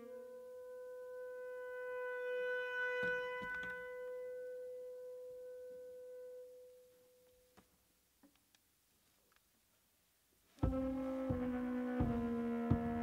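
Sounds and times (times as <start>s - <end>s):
alto saxophone long note: 0.0s - 7.2s, 10.6s - 13.0s
dull thumps: 10.6s - 13.0s.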